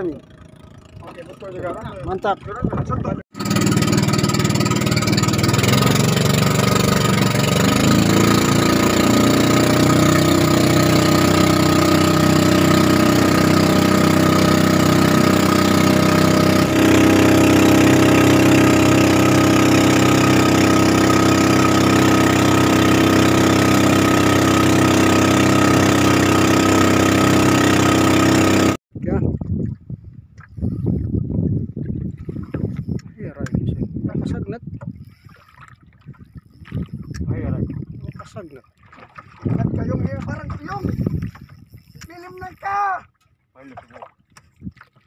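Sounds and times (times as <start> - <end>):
boat motor running: 0.0 - 28.8, 36.0 - 44.6
wind and water hiss: 34.8 - 38.6, 40.6 - 43.0.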